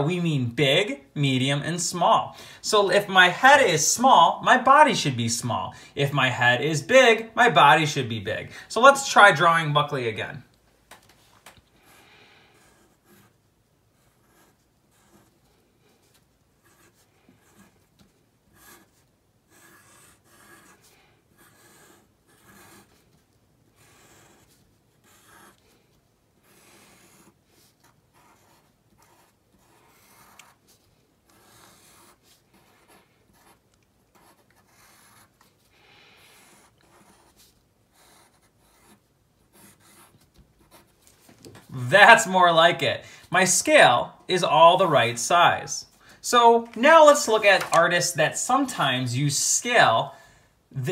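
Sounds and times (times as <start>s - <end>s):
pencil scratching on paper: 11.7s - 41.0s.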